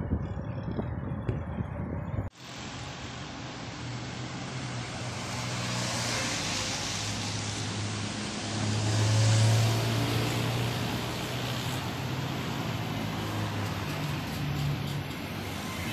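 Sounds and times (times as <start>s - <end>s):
low engine hum: 0.0s - 2.3s
road traffic passing: 0.0s - 15.9s.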